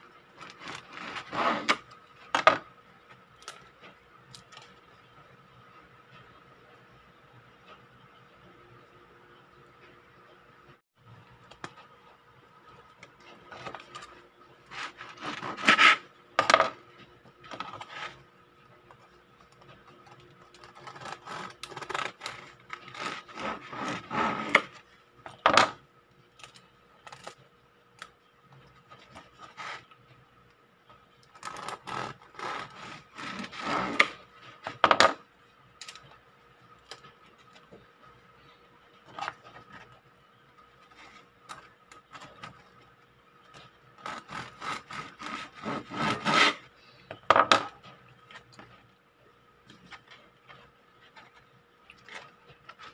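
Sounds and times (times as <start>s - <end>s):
bread knife sawing through bread: 0.4s - 1.8s, 14.7s - 16.1s, 20.6s - 24.8s, 31.4s - 34.2s, 44.0s - 46.7s.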